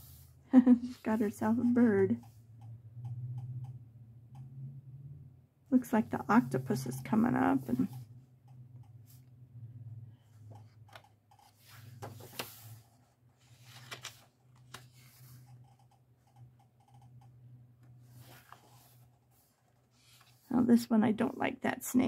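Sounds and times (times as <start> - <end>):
paper pages rustling: 10.9 - 15.5, 18.1 - 20.5.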